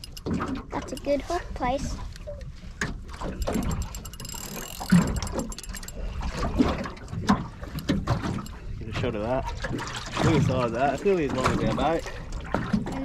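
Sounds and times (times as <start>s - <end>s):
fishing reel clicking: 0.0s - 1.1s, 3.2s - 6.4s, 7.0s - 8.6s
wind and water rumble: 0.0s - 13.0s.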